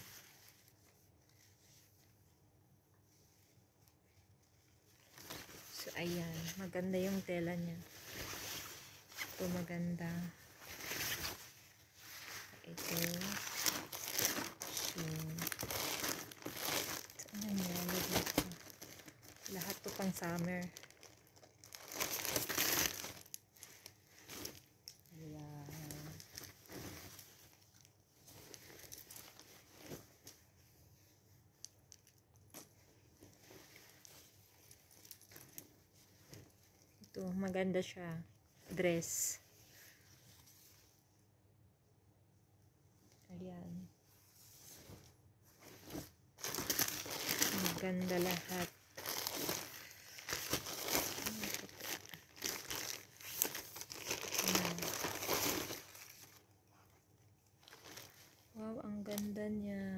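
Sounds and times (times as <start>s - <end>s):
fabric dress rustling: 2.9s - 24.8s, 25.6s - 31.6s, 44.0s - 58.5s
plastic bags crinkling: 5.0s - 30.0s, 33.2s - 35.7s, 45.6s - 56.5s, 57.5s - 59.4s.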